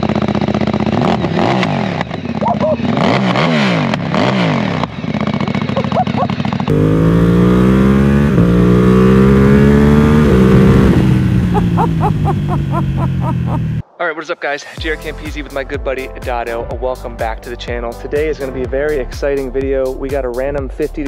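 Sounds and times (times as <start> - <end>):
motorcycle accelerating: 0.0 - 13.8
motorcycle engine revving: 0.0 - 13.8.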